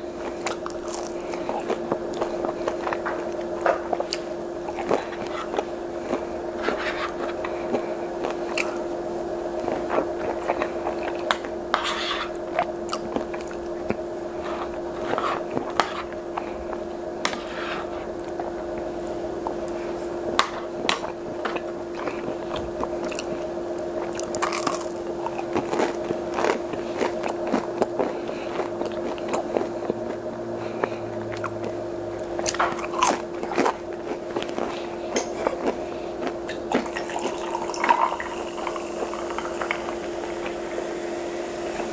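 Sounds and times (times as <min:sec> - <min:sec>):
biting and chewing crunches: 0:00.0 - 0:37.6
steady low hum: 0:00.0 - 0:41.9.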